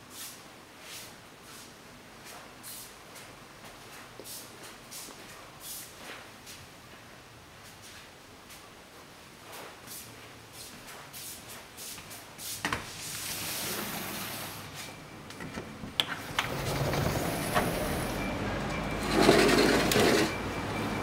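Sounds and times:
outside traffic noise: 12.6 - 21.0
sliding door rolling on track: 13.0 - 14.8, 16.0 - 21.0.

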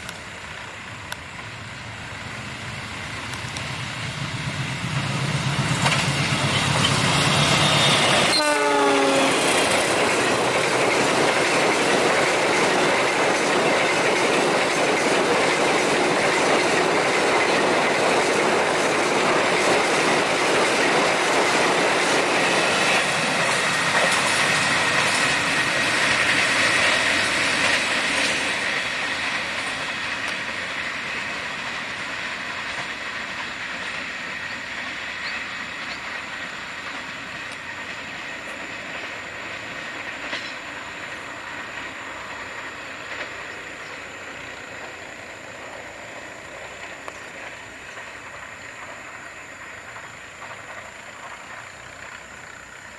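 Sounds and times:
diesel locomotive passing: 0.0 - 52.9
train wheels clacking on rails: 0.0 - 52.9
train horn: 7.2 - 9.8.

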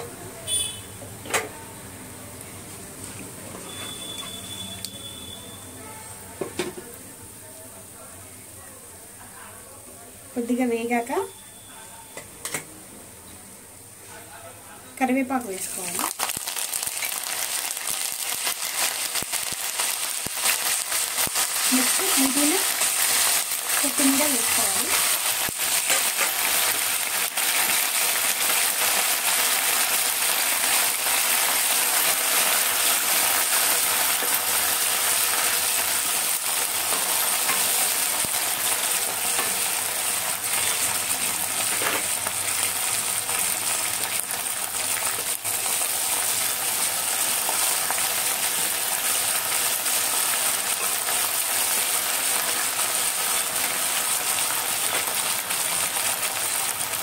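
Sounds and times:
leaves sizzling in hot oil: 15.0 - 57.0.

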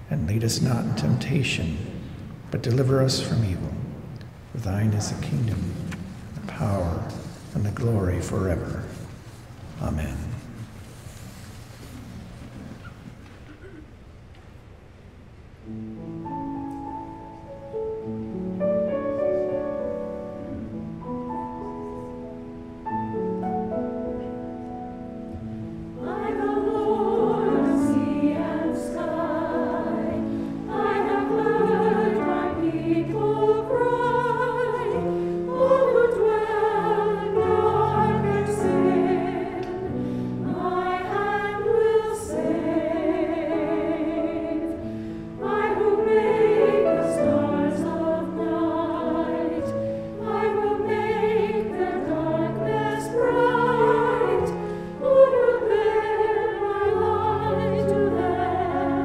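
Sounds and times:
piano playing: 15.6 - 59.0
church choir singing: 25.3 - 59.0.

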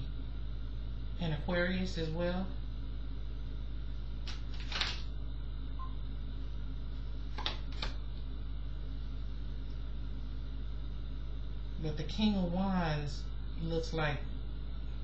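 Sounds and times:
low electrical hum: 0.0 - 15.0
cards swishing: 4.3 - 5.0.

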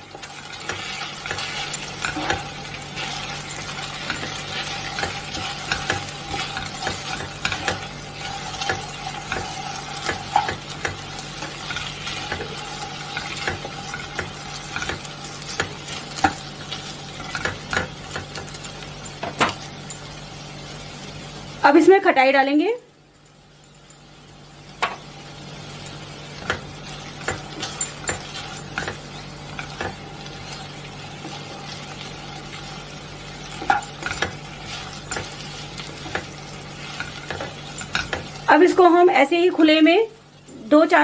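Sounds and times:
food sizzling in pan: 0.0 - 41.0
spatula scraping and tapping pan: 0.1 - 18.6, 26.4 - 32.0, 33.4 - 38.4.

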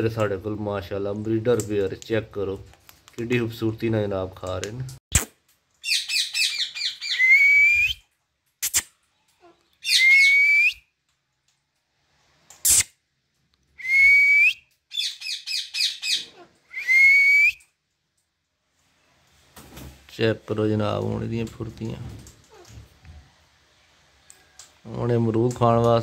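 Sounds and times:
parakeet calling shrilly: 5.8 - 7.3, 9.8 - 10.4, 14.9 - 16.5.

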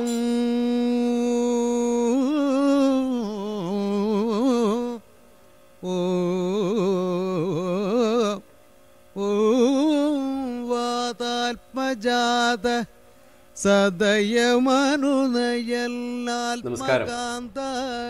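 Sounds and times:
person singing ornamented melody: 14.1 - 18.0.

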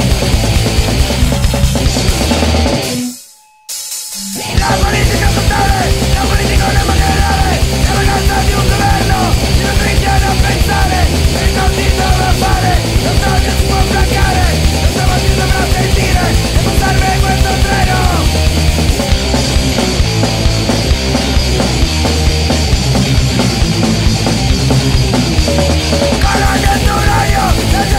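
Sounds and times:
electric guitar: 0.0 - 3.2, 4.3 - 27.9
drum kit and cymbals: 0.0 - 27.9
person singing into microphone: 4.4 - 18.3, 26.2 - 27.9.

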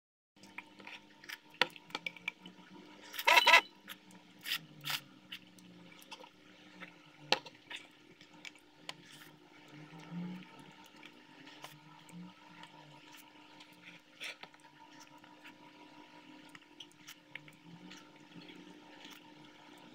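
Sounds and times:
slurping and chewing: 0.4 - 15.7, 16.4 - 19.9
plastic spoon scraping ceramic bowl: 3.1 - 3.7.

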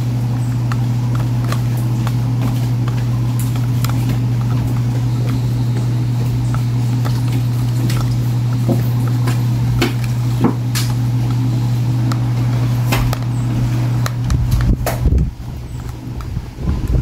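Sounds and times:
steady low hum: 0.0 - 17.0
fork clicking on plastic tub: 0.4 - 11.4.

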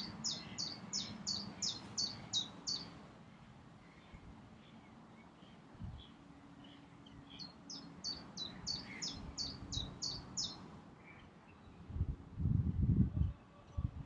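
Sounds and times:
songbird singing high notes: 0.0 - 2.9, 7.3 - 10.6.

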